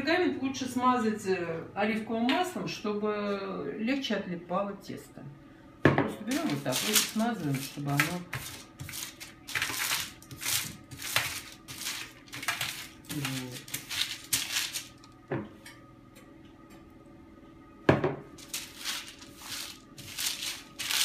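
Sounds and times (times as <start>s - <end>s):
paper rustling wiping strokes: 18.4s - 21.0s.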